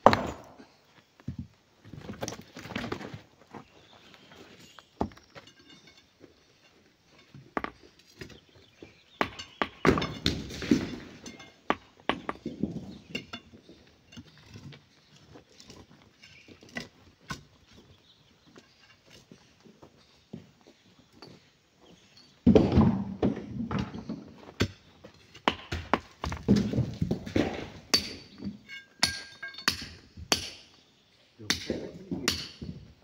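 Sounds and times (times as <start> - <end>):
hand tools striking rock: 0.0 - 0.6, 7.2 - 13.5, 24.6 - 30.8, 31.5 - 32.8
rubble scraping: 22.5 - 28.7.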